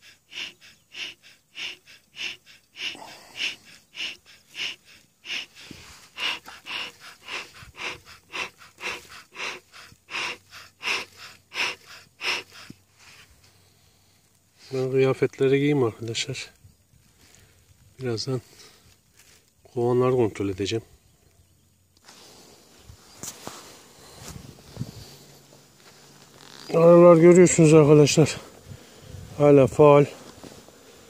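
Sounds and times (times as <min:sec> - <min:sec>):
bellows puffing air: 0:00.0 - 0:13.5.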